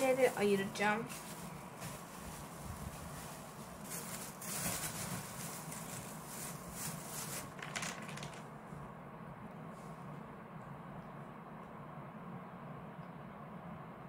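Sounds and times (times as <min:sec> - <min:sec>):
plastic bag crinkling: 0:00.0 - 0:08.5.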